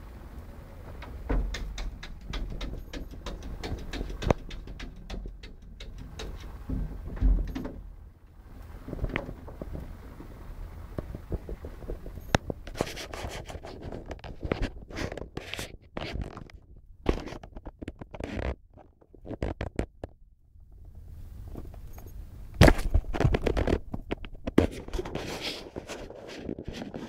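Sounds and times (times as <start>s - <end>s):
scratching and scraping: 0.9s - 7.8s, 8.5s - 20.1s, 21.5s - 27.0s
sharp knocks: 1.0s - 7.9s.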